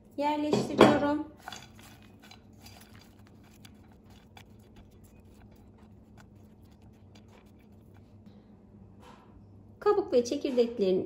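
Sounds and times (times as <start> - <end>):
peels rustling: 1.4 - 8.2.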